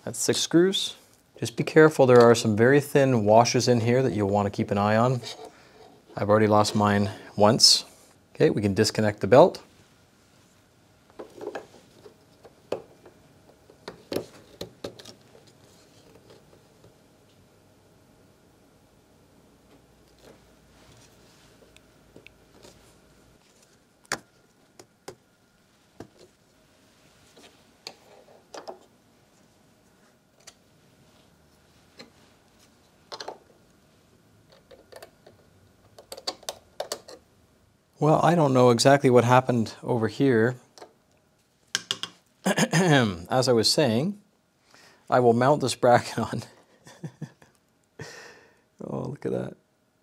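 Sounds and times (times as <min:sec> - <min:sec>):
small parts clicking and tapping: 0:34.5 - 0:37.2.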